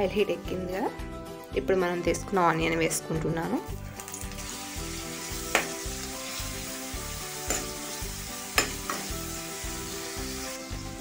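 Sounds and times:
onions sizzling in oil: 0:04.0 - 0:11.0
metal spoon knocking on pan: 0:05.5 - 0:05.8, 0:07.5 - 0:07.8, 0:08.6 - 0:09.1.

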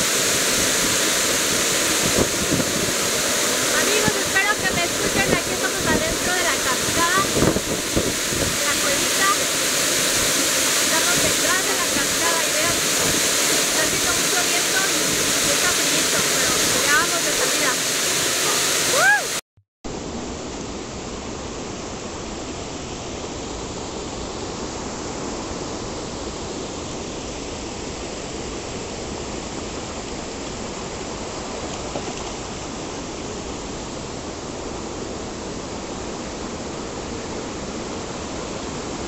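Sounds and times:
stream rushing over rocks: 0:00.0 - 0:19.4.

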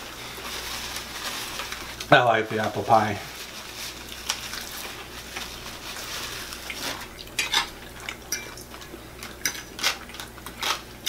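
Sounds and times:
paper rustling: 0:00.3 - 0:07.1.

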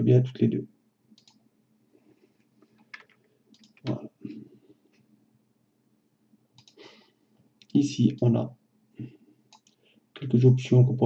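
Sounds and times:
computer mouse clicks: 0:01.2 - 0:01.4, 0:02.6 - 0:04.0, 0:06.6 - 0:06.9, 0:09.5 - 0:09.8.

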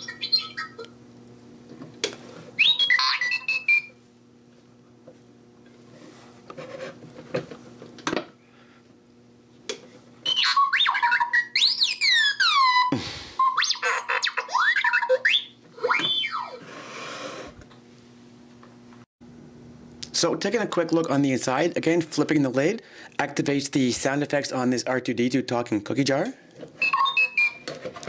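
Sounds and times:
robot beeps and whistles: 0:02.6 - 0:03.9, 0:10.3 - 0:13.8, 0:26.8 - 0:27.6.

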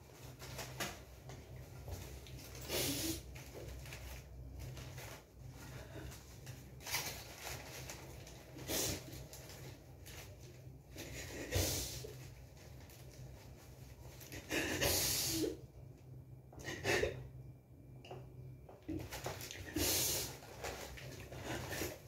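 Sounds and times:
paper rustling and crinkling: 0:00.0 - 0:11.3, 0:18.9 - 0:22.0
low steady hum: 0:00.0 - 0:22.0.

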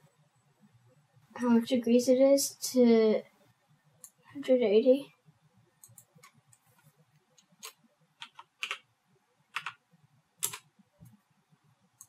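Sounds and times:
keyboard keystrokes: 0:07.4 - 0:08.8, 0:10.4 - 0:10.7.

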